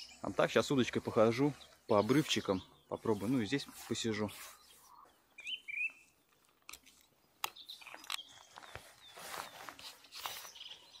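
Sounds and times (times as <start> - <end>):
bird chirping: 0.0 - 11.0
fishing rod clicks and rustling: 6.2 - 10.9.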